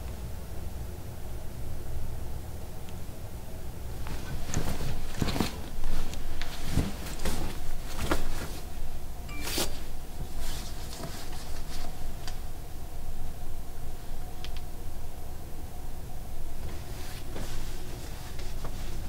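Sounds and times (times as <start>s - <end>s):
fabric rustling: 4.0s - 12.0s, 16.6s - 19.0s.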